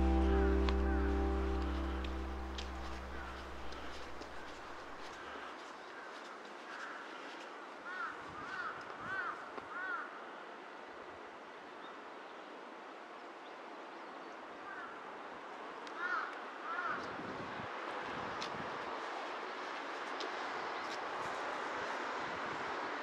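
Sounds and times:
steady background hiss: 0:00.0 - 0:05.4.

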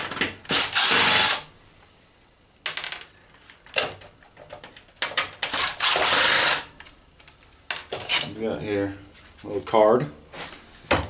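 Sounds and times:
cordless drill driver whirring: 0:00.5 - 0:01.4, 0:05.5 - 0:06.7.

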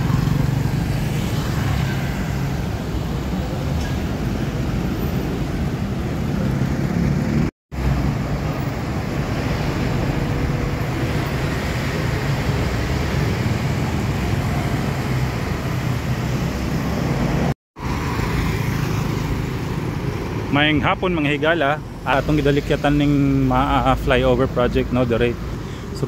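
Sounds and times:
road traffic rumble: 0:00.0 - 0:26.0.

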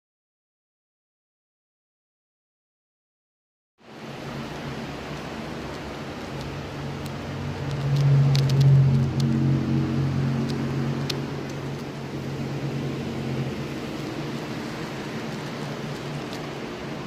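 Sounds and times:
electric motor hum: 0:04.0 - 0:17.0.

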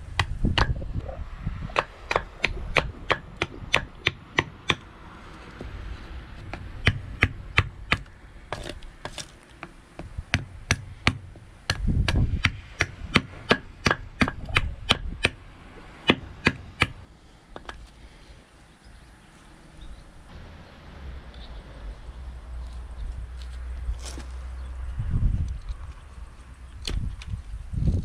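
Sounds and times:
knife chopping wood: 0:00.2 - 0:00.8, 0:01.7 - 0:04.8, 0:06.4 - 0:09.7, 0:10.3 - 0:15.4.

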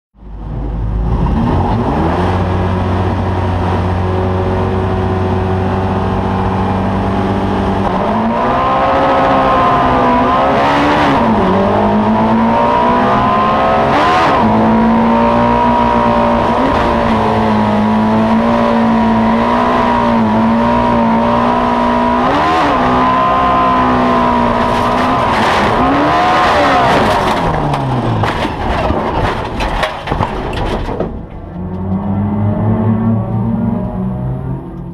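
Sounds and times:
race car engine revving: 0:00.4 - 0:29.8, 0:31.4 - 0:34.9
car rolling over: 0:22.8 - 0:34.0.

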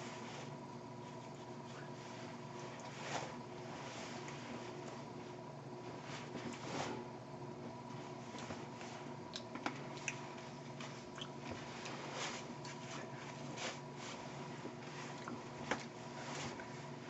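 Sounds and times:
electrical hum with high tone: 0:00.0 - 0:17.0
small clicks from hands and mouth: 0:09.3 - 0:10.2.

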